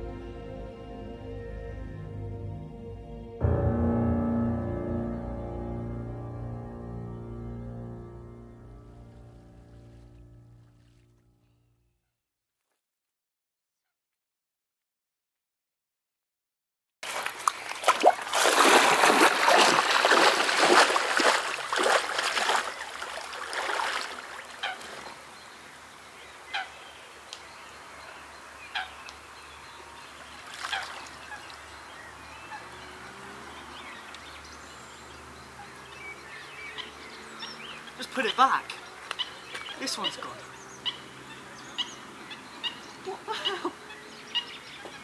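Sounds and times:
lake water splashing: 17.0s - 27.1s, 28.8s - 45.0s
waterfowl calls: 19.3s - 25.4s, 26.3s - 27.2s, 28.2s - 29.3s, 30.0s - 34.3s, 35.1s - 45.0s.

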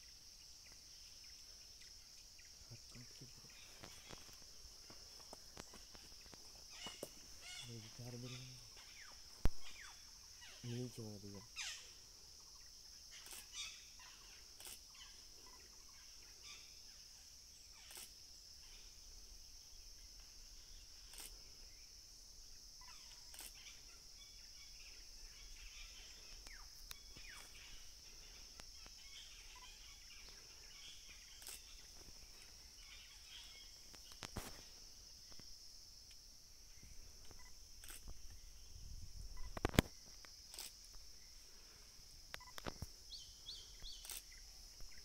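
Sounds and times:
high-pitched insect drone: 0.0s - 45.0s
short bird calls: 6.7s - 12.0s, 22.8s - 34.2s.

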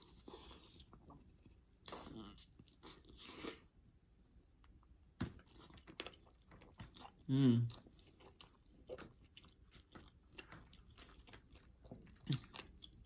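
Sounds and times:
person chewing food: 0.0s - 3.9s, 4.6s - 13.0s.

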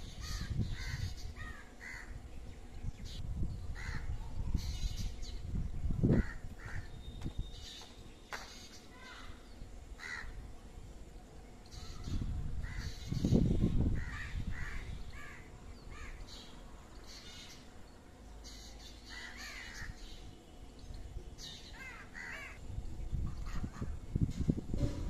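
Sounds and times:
crows cawing: 0.2s - 2.2s, 3.8s - 4.1s, 6.1s - 6.9s, 10.0s - 10.4s, 14.0s - 16.2s, 19.1s - 20.0s, 21.8s - 22.6s.

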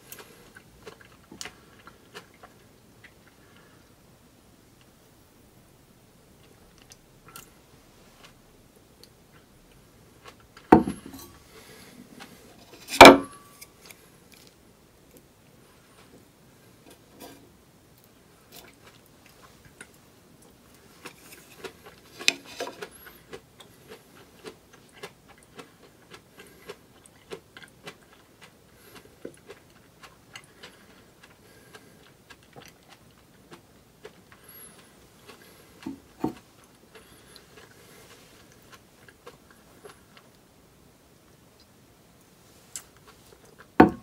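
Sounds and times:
crisp chewing: 0.0s - 3.7s, 18.0s - 40.4s.

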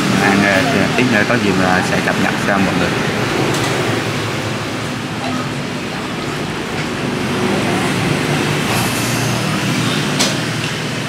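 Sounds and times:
street traffic noise: 0.0s - 11.0s.

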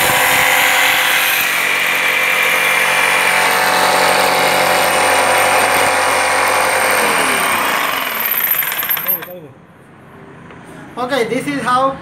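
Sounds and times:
jigsaw cutting plywood: 0.0s - 9.3s.

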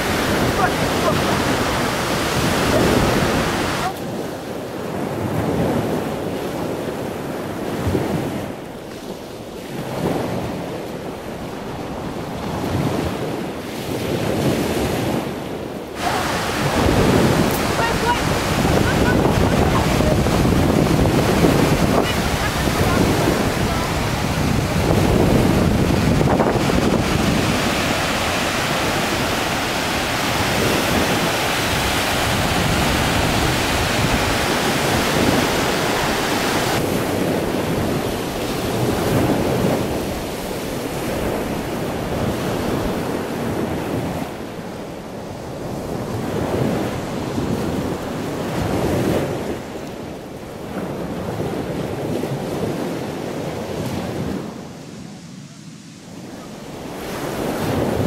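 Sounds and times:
surf breaking on beach: 0.0s - 58.0s
wind buffeting microphone: 0.0s - 58.0s.

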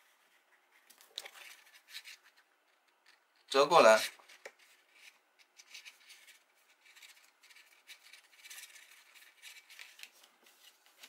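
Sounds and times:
cardstock rustling while folded: 3.8s - 11.0s.

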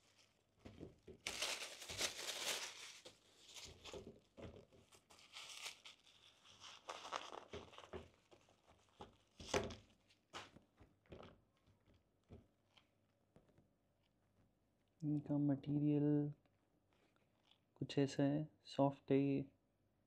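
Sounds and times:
tissue paper crinkling: 0.0s - 0.5s, 1.2s - 9.6s.

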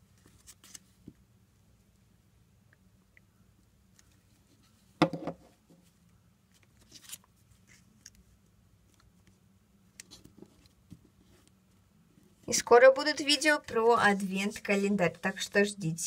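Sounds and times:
paper rustling: 0.2s - 1.0s, 6.5s - 8.2s.

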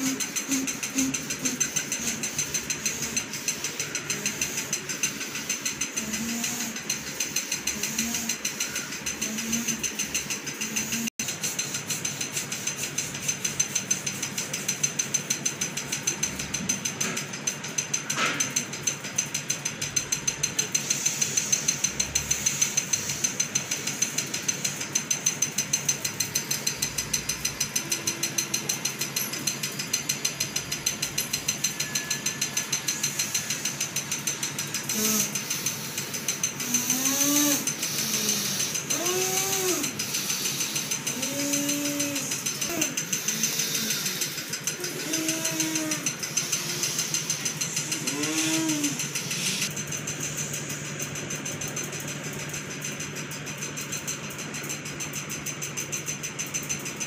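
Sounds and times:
person moaning: 47.9s - 49.0s.

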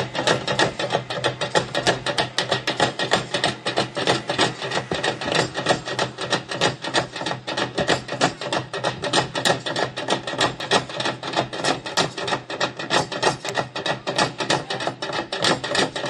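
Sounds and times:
plastic barrel drums beaten: 0.0s - 16.0s.

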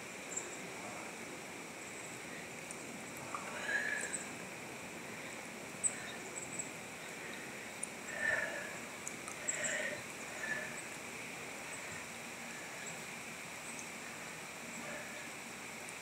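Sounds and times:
flowing river water: 0.0s - 16.0s
short faint calls: 3.2s - 15.5s.

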